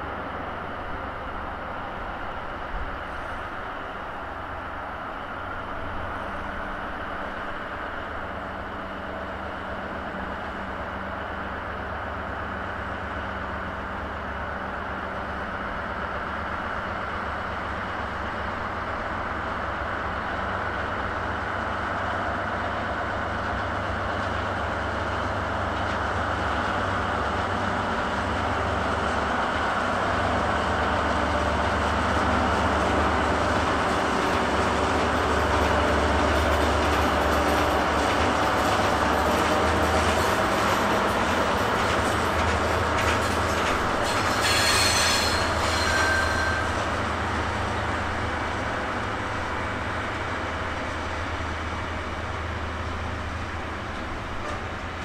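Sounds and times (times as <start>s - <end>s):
diesel locomotive engines humming: 0.0s - 55.0s
train wheels rumbling on rails: 0.0s - 55.0s.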